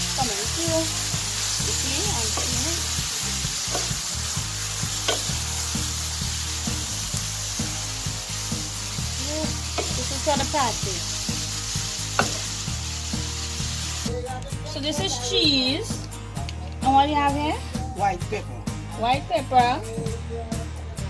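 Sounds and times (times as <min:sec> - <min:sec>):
meat sizzling in a pan: 0:00.0 - 0:14.2
spatula tapping a pan: 0:02.0 - 0:02.7, 0:03.7 - 0:04.0, 0:05.0 - 0:05.4, 0:09.7 - 0:10.6, 0:12.1 - 0:12.6.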